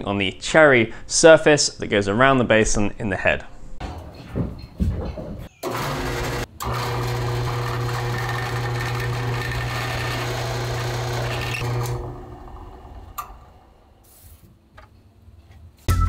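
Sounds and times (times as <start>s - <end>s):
drill press boring into wood: 5.6s - 13.6s.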